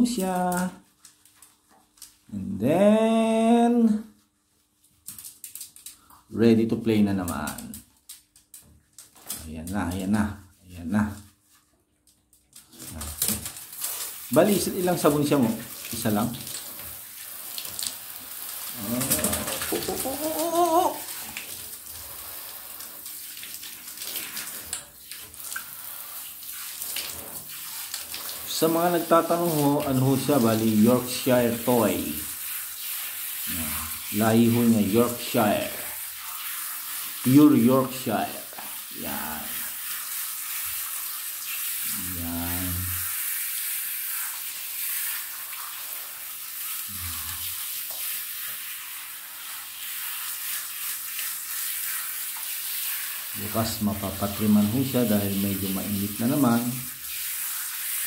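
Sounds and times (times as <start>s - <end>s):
shower water hissing: 12.6s - 58.0s.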